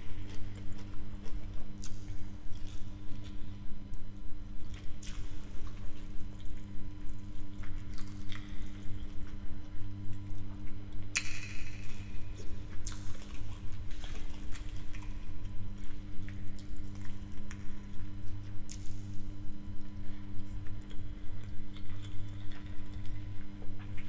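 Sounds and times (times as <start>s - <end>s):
steady low hum: 0.0s - 24.0s
wet chewing and mouth smacking: 0.2s - 3.4s, 7.6s - 9.4s, 12.4s - 15.2s, 15.8s - 19.0s, 20.4s - 24.0s.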